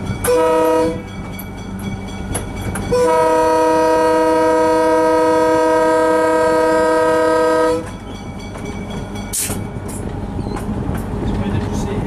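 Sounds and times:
locomotive running: 0.0 - 12.0
locomotive air horn blast: 0.3 - 1.0, 2.9 - 7.9.

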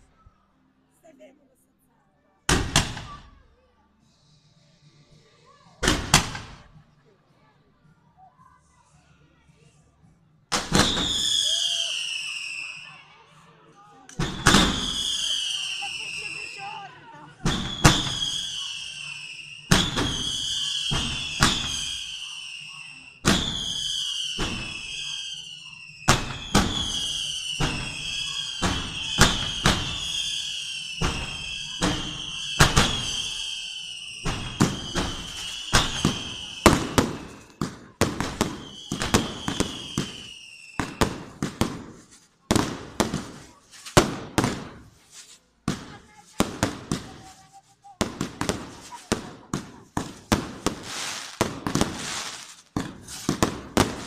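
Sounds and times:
fireworks bangs: 2.5 - 3.4, 5.8 - 6.7, 10.5 - 12.4, 14.1 - 54.0
descending firework whistle: 10.7 - 13.0, 14.2 - 16.8, 17.5 - 37.6, 38.2 - 41.2.

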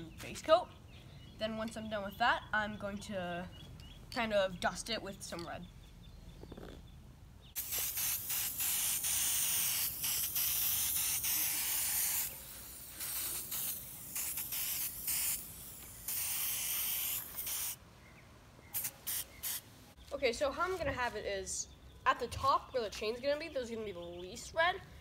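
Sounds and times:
spray paint can hissing: 7.6 - 17.8, 18.7 - 19.6.

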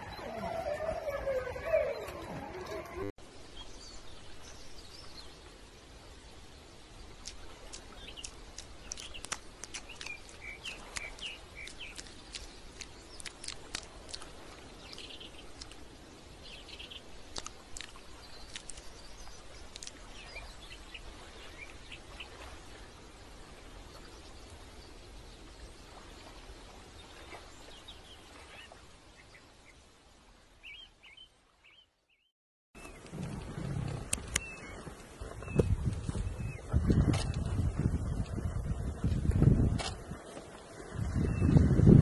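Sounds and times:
small birds chirping: 7.0 - 22.4.

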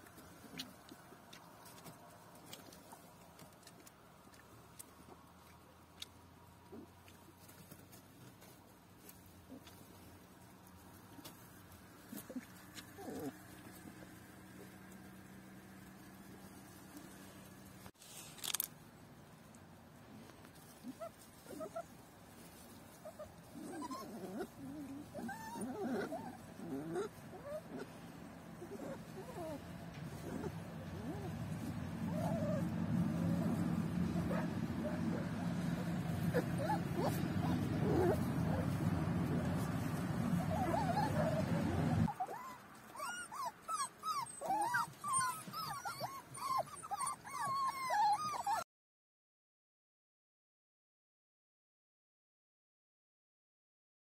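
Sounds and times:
puppies whining: 12.0 - 14.7, 20.8 - 21.9, 23.0 - 28.0, 28.6 - 48.7.

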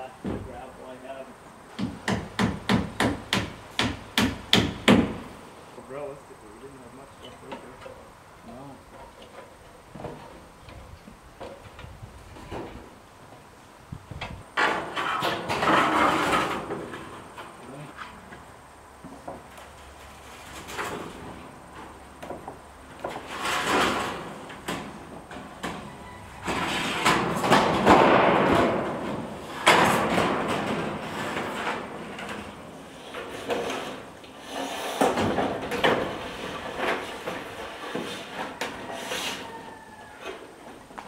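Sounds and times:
sheet metal scraping and sliding: 14.6 - 17.3, 23.0 - 40.6.

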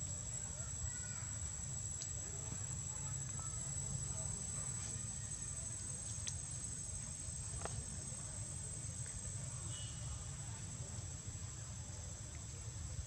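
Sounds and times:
faint clicks: 6.0 - 6.5.

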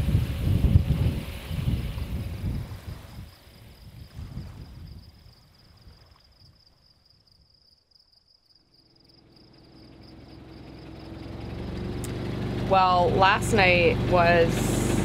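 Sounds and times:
wind gusting on microphone: 0.0 - 6.0
low hum: 9.1 - 15.0.

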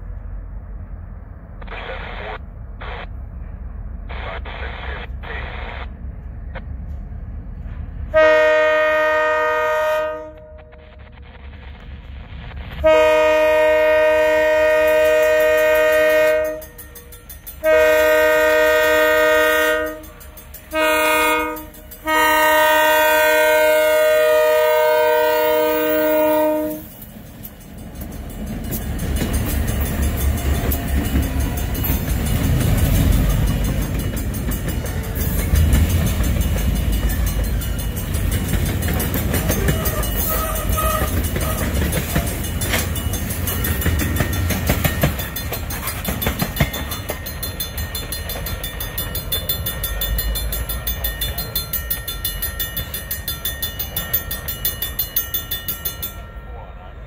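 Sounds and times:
locomotive engines and wheels rumbling: 0.0 - 57.0
locomotive air horn blasts: 8.1 - 10.8, 12.8 - 16.8, 17.6 - 26.9, 39.8 - 41.8.

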